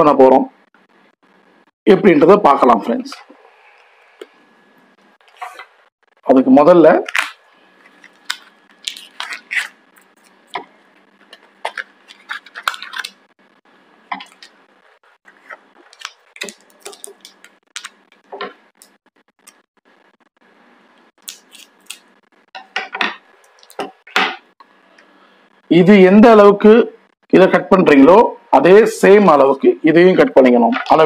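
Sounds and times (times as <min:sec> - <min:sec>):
packaging rustling and clicking: 0:10.5 - 0:13.2.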